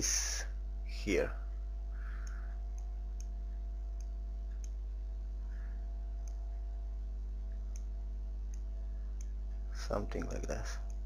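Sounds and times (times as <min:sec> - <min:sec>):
steady low hum: 0:00.0 - 0:11.0
computer mouse clicks: 0:02.2 - 0:04.8, 0:06.2 - 0:06.4.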